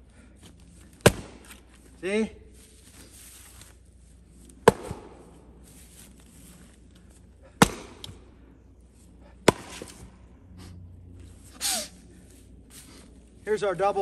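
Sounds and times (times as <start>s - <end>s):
axe splitting firewood: 0.8s - 1.7s, 4.6s - 5.2s, 7.4s - 8.2s, 9.4s - 10.1s.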